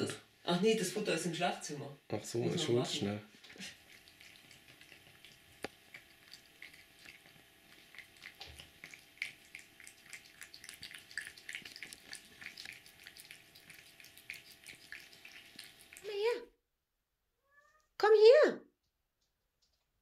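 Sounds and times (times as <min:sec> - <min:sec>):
cat chewing and licking: 0:03.3 - 0:16.4.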